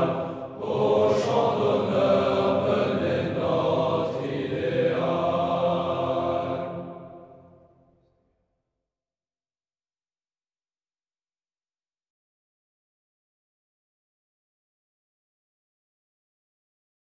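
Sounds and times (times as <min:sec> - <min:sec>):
choir singing: 0:00.0 - 0:07.7.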